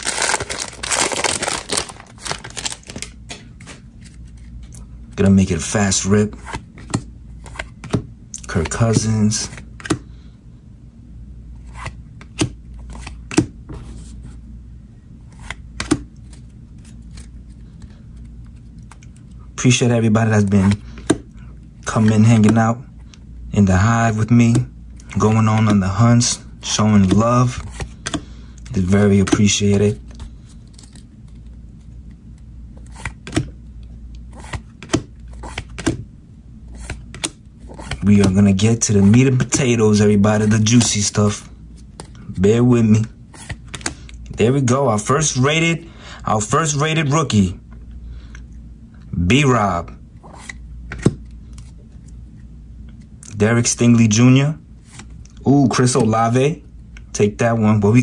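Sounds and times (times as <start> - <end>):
low steady hum: 0.0 - 58.0
trading cards flipped by hand: 15.3 - 19.2, 32.8 - 33.5, 34.2 - 36.0, 36.7 - 38.4, 43.3 - 44.3
trading cards being shuffled: 34.3 - 36.0, 36.7 - 39.8.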